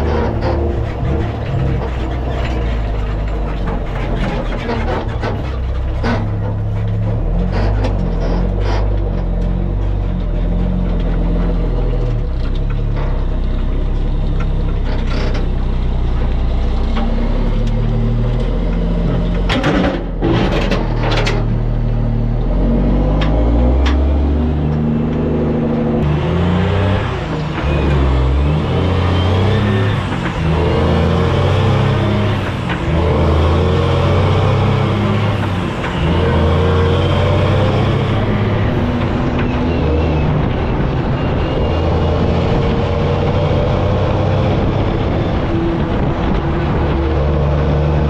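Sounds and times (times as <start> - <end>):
rushing road noise: 0.0 - 48.0
truck diesel engine shifting gears: 0.0 - 48.0.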